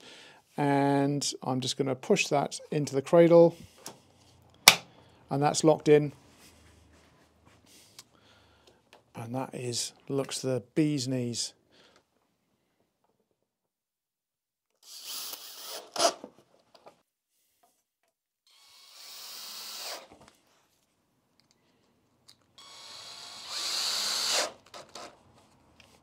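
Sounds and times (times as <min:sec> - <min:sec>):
cordless drill motor whine: 0:22.6 - 0:24.5.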